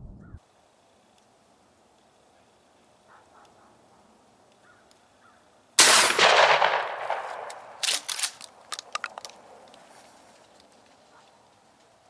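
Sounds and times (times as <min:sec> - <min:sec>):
shotgun shot: 0:05.8 - 0:08.0
sharp clicks and knocks: 0:07.1 - 0:09.8.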